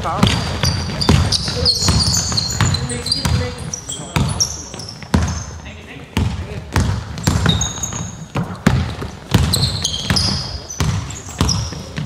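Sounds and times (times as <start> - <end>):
basketball bouncing on floor: 0.0 - 12.0
shoes squeaking on floor: 0.0 - 12.0.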